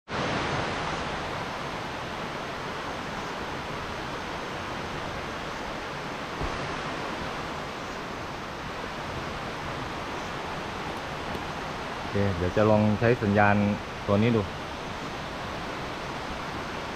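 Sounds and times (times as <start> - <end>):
waterfall rushing: 0.1 - 16.9
soft low bump: 6.4 - 6.9.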